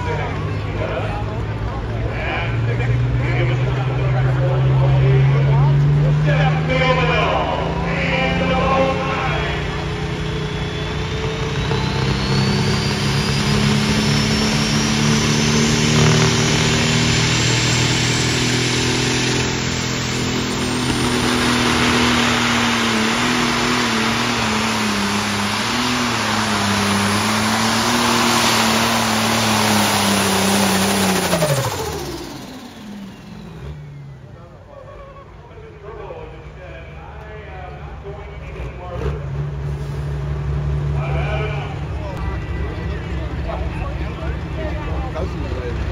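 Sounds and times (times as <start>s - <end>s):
tractor engine at full throttle: 0.0s - 45.9s.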